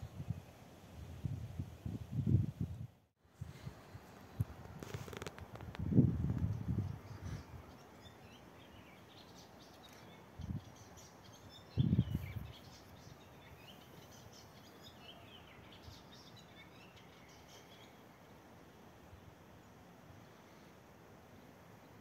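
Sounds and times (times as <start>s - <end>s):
small birds chirping: 6.3s - 18.4s.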